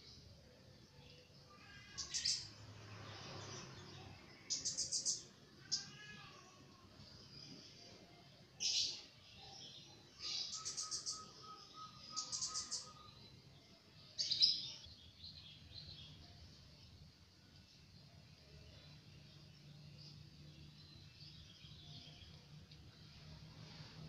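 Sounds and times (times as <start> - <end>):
birds chirping: 3.1 - 6.1, 8.6 - 16.3.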